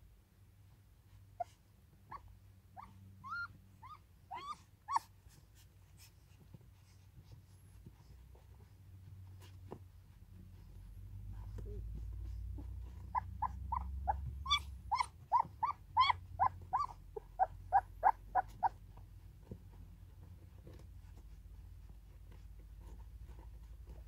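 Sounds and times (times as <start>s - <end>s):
puppies squeaking and whimpering: 2.8s - 5.1s, 11.6s - 18.8s.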